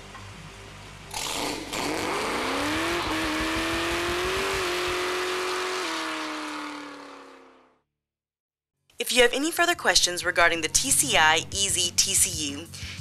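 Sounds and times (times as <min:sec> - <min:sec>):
car engine revving: 0:01.1 - 0:07.8.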